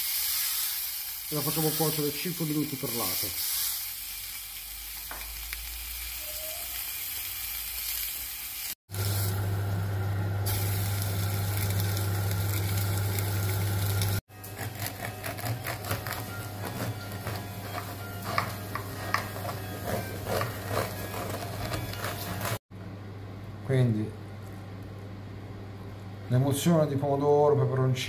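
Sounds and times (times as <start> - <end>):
octopus sizzling on grill pan: 0.0 - 9.4, 10.4 - 14.2, 17.1 - 21.4
knife sawing through bread: 14.4 - 22.6.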